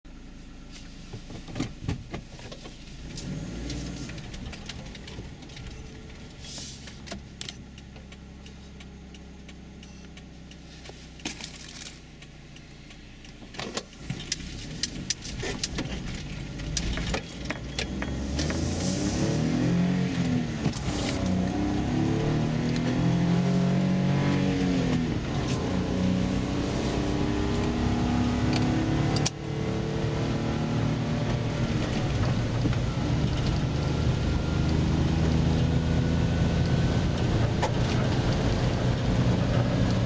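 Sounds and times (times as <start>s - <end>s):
road noise: 0.1s - 40.0s
car engine idling: 4.0s - 29.8s.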